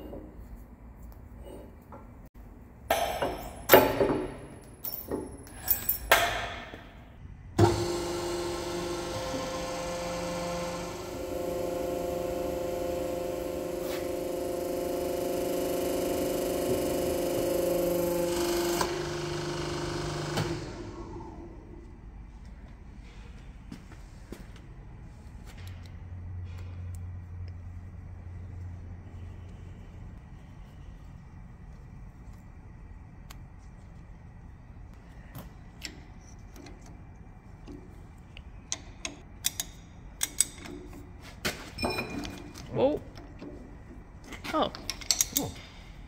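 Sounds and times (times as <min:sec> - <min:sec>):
hydraulic press pump running: 0:07.6 - 0:21.7.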